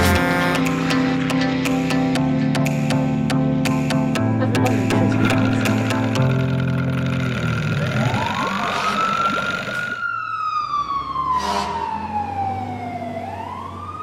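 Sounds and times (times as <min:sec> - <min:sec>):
wailing siren: 0:07.6 - 0:14.0.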